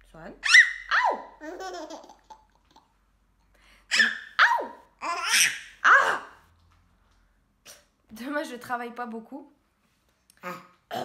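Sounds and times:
baby laughing: 0:00.5 - 0:03.0, 0:03.9 - 0:06.3.

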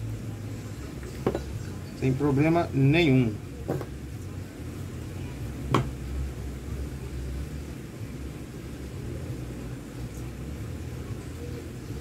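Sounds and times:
sharp tap on wooden workbench: 0:03.7 - 0:03.9, 0:05.7 - 0:05.9.

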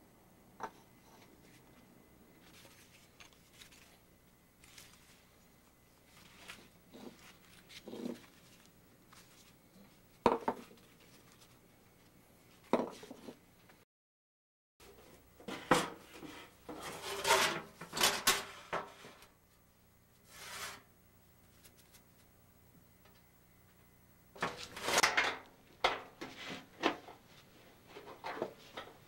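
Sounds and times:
knocks on wooden bench: 0:10.2 - 0:10.6.

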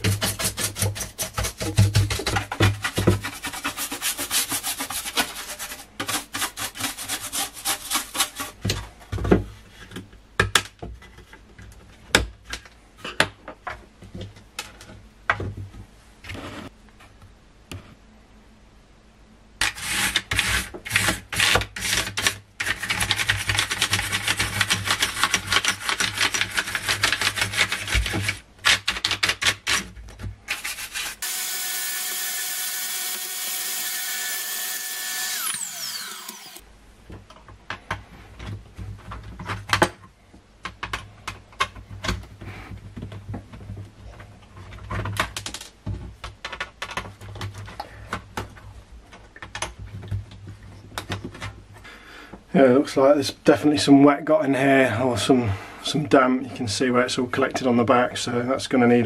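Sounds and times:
brush scrubbing plastic case: 0:00.0 - 0:08.6, 0:19.6 - 0:28.4
vacuum cleaner running: 0:31.2 - 0:36.6
clicks and knocks of parts: 0:44.6 - 0:51.6.

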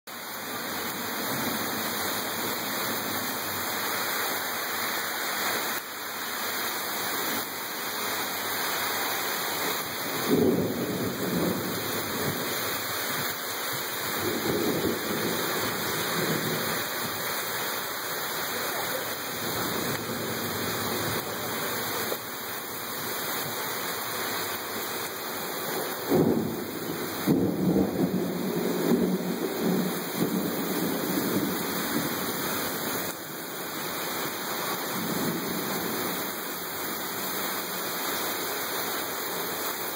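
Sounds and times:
heavy rain on pavement and cars: 0:00.1 - 0:39.9
thunder rumbling: 0:09.6 - 0:33.3
thunder clap: 0:10.2 - 0:13.3, 0:25.9 - 0:32.2.

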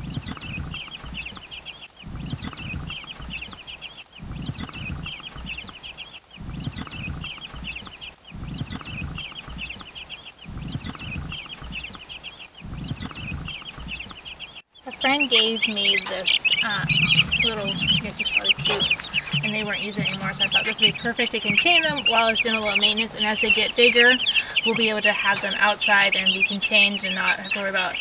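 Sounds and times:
wind rumble on microphone: 0:00.0 - 0:01.3, 0:06.4 - 0:07.7, 0:10.5 - 0:11.8, 0:12.6 - 0:14.0, 0:15.7 - 0:28.0
chicks peeping: 0:00.0 - 0:28.0.

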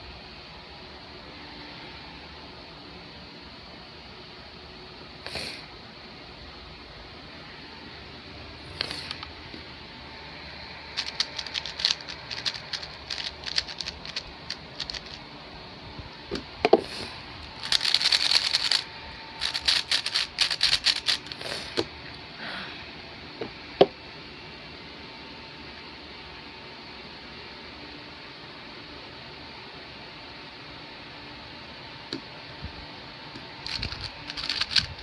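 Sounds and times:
puzzle cube clicking and rattling: 0:11.0 - 0:15.2, 0:17.4 - 0:18.8, 0:19.4 - 0:21.5, 0:33.6 - 0:35.0.

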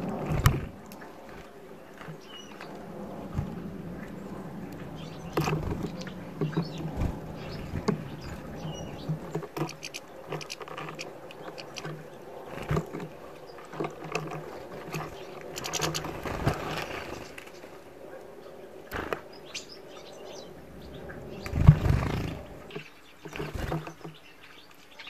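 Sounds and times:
bird pecking and cracking seeds: 0:00.0 - 0:17.7.

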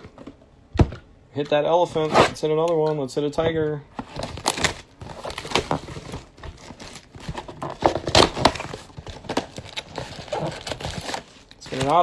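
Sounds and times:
cardboard box crinkling and rustling: 0:04.0 - 0:12.0.

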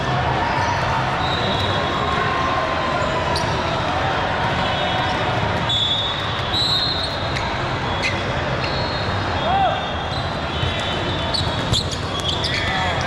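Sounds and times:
murmur of spectators: 0:00.0 - 0:13.0
shoes squeaking on court floor: 0:06.8 - 0:09.2, 0:10.1 - 0:13.0.

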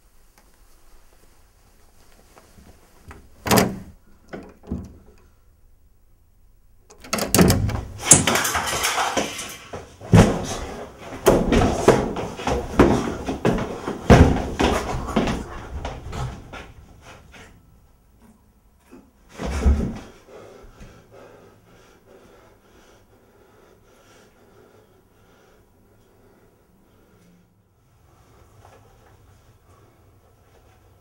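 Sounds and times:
door banging shut: 0:03.1 - 0:05.1, 0:06.9 - 0:09.4
bangs and thuds: 0:07.3 - 0:15.4.

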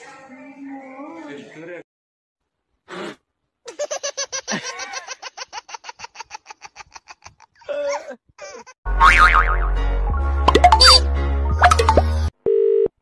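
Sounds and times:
person laughing heartily: 0:03.7 - 0:08.8.

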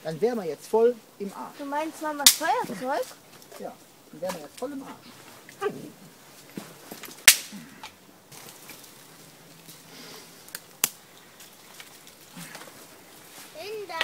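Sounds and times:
kindling snapping and clicking: 0:02.2 - 0:02.6, 0:07.0 - 0:08.0, 0:10.5 - 0:11.0.

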